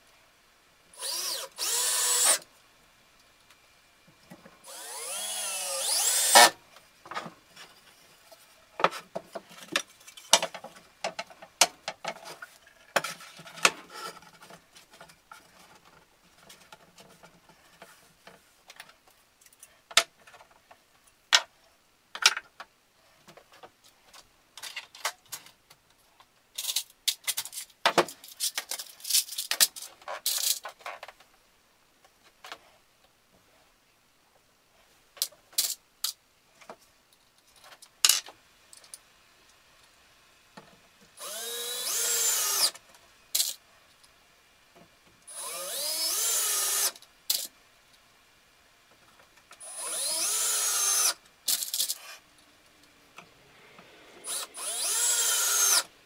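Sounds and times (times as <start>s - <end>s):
power drill driving screws: 1.0s - 2.4s, 4.6s - 6.6s, 41.2s - 42.8s, 45.3s - 47.0s, 49.6s - 51.2s, 54.2s - 55.9s.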